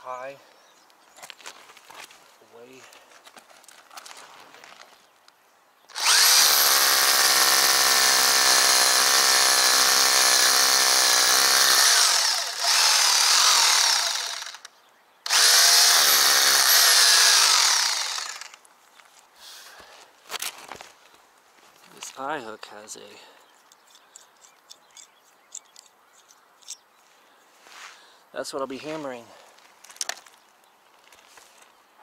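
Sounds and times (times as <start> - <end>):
hammer drill boring into brick: 5.9 - 14.7, 15.3 - 18.6.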